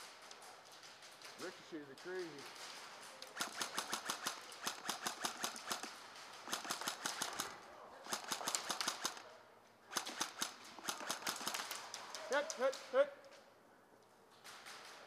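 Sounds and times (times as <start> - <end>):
airsoft guns firing bursts: 2.4 - 9.3, 9.9 - 12.7.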